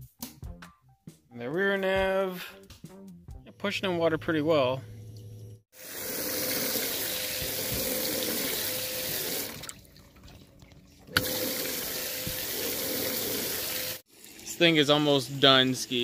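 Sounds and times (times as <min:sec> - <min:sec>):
pump hum: 0:04.5 - 0:15.6
bilge pump water rushing: 0:05.8 - 0:16.0.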